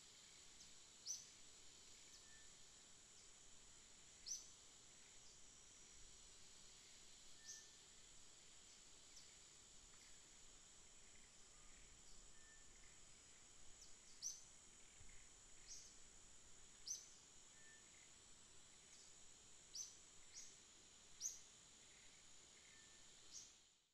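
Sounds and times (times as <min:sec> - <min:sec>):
high insect drone: 0:00.0 - 0:23.9
bird chirping: 0:07.4 - 0:07.7.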